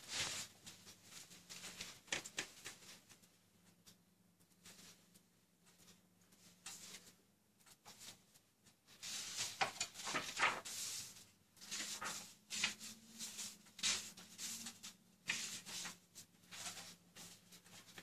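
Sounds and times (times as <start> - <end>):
book pages turning: 9.0 - 18.0.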